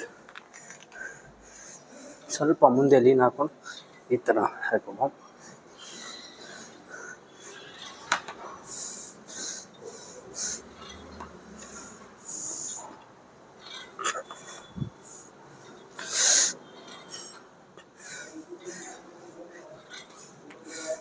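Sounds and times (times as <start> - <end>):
man breathing forcefully: 5.4 - 13.0, 13.6 - 17.1, 17.8 - 21.0.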